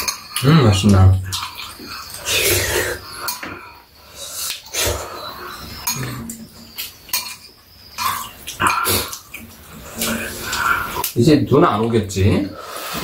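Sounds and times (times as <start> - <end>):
utensils clicking on ceramic bowls: 0.0 - 3.6, 5.7 - 11.2
slurping and chewing: 1.2 - 11.2.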